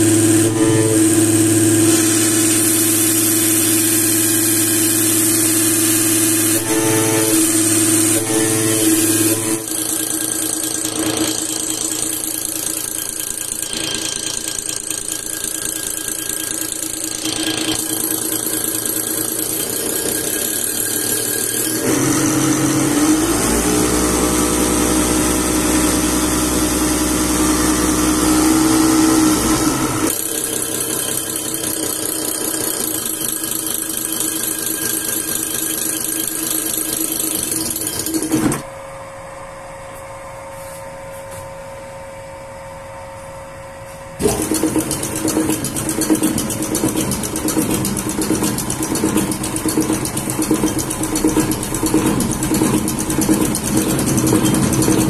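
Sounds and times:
rising machine tone: 0:00.0 - 0:38.6
injection pump test bench running: 0:00.0 - 0:55.0.

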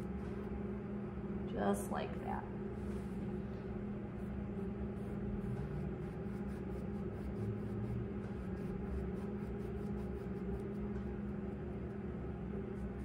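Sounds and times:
steady low hum: 0:00.0 - 0:13.0
paintbrush scratching on canvas: 0:04.2 - 0:12.0.

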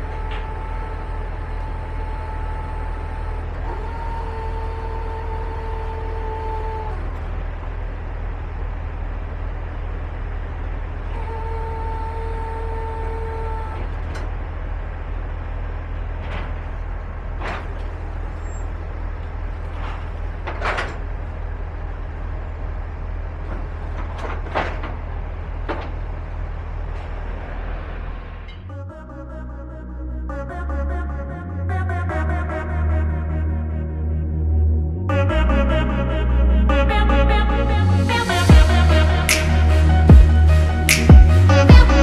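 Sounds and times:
hydraulic pump whine: 0:00.0 - 0:28.8
truck engine droning: 0:00.0 - 0:42.0.

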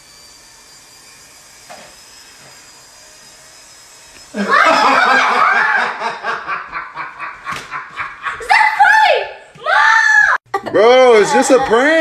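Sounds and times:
electric hair clippers buzzing: 0:00.0 - 0:06.0
person screaming: 0:04.4 - 0:05.9, 0:08.4 - 0:10.4.

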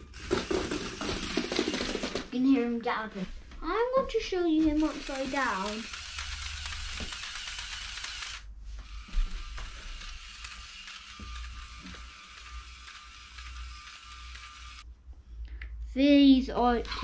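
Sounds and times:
faint motor whine: 0:04.7 - 0:14.8
robot legs mechanical whirr: 0:04.8 - 0:14.8.

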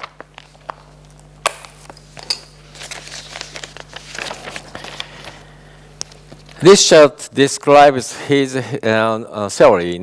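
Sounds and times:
paper rustling: 0:02.7 - 0:05.5
paper pages clicking: 0:02.8 - 0:05.4.

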